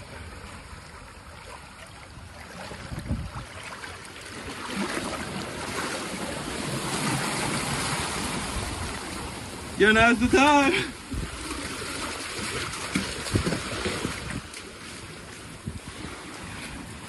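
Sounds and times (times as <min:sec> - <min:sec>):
wind rumbling on microphone: 0:02.0 - 0:04.0, 0:06.2 - 0:17.0
sea surf washing against rocks: 0:02.5 - 0:17.0.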